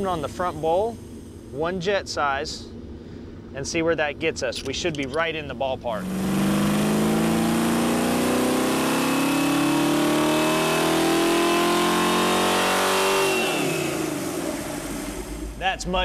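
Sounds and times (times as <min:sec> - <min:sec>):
engine revving on a dyno: 0:05.9 - 0:15.6.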